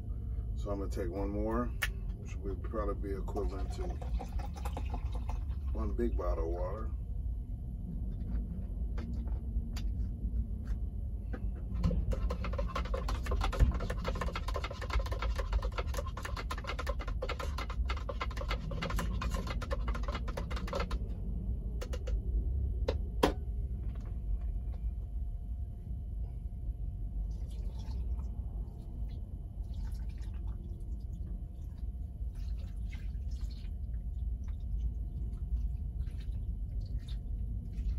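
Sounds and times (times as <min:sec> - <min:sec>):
steady low hum: 0:00.0 - 0:37.9
water pouring into a glass: 0:03.5 - 0:05.8, 0:27.3 - 0:28.2.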